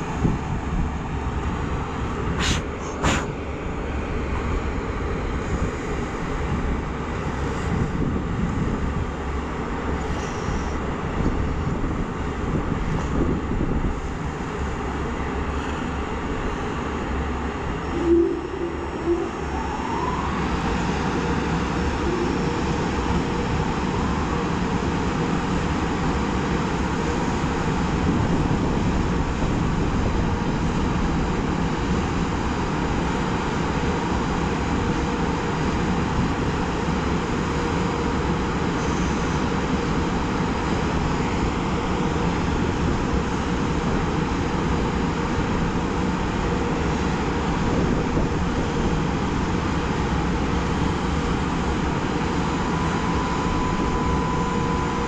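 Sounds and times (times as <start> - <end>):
locomotive cooling blowers drone: 0.0 - 55.0
faint rising whine: 17.7 - 24.8.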